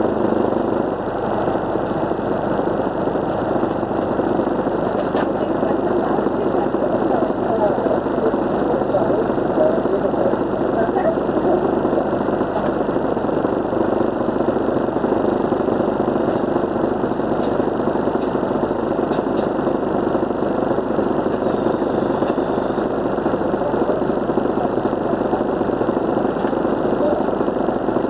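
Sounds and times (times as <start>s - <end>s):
bus diesel engine idling: 0.0s - 28.0s.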